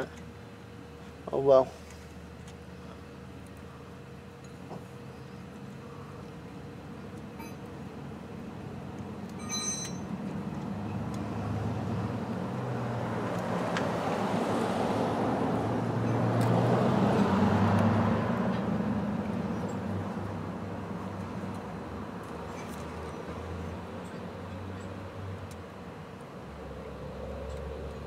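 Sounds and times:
vehicle passing by: 10.4s - 25.4s, 26.5s - 28.0s.

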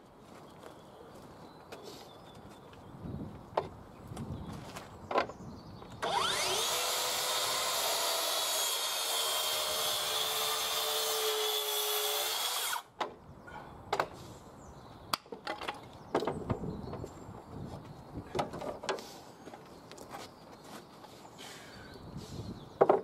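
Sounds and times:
track saw cutting wood: 6.0s - 12.9s.

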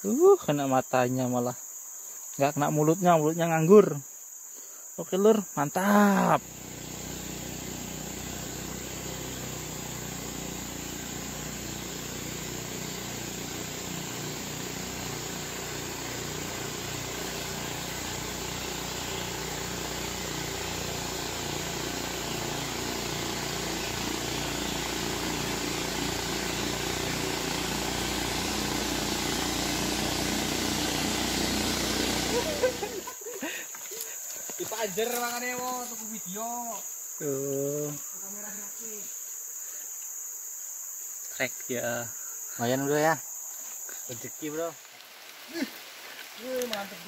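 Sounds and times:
motorboat engine droning: 6.4s - 33.1s.

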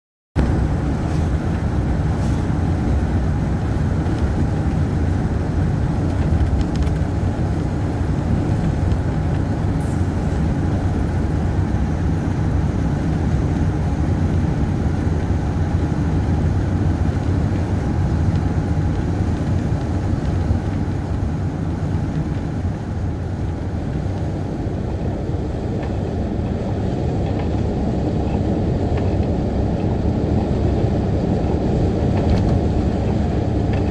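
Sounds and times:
car driving interior: 0.4s - 33.9s.

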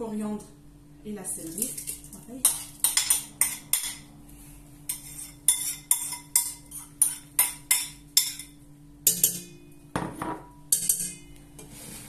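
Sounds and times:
ceramic bowl clinking on steel pot: 4.9s - 11.3s.

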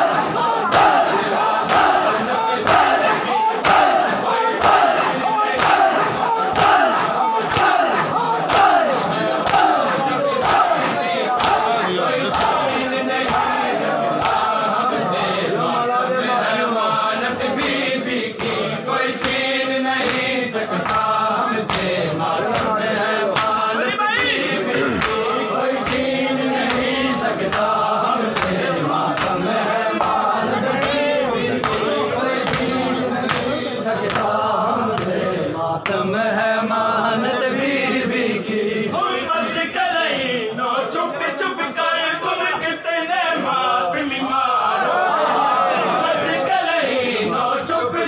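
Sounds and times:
men chanting: 0.0s - 48.0s
hands slapping chests: 4.6s - 11.7s, 22.5s - 23.6s.

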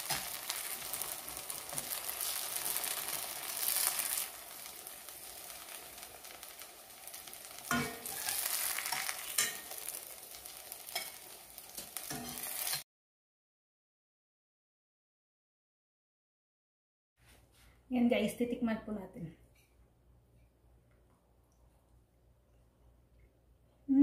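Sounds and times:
patties sizzling in oil: 0.0s - 12.8s
metal spatula scraping a pan: 7.6s - 12.8s.

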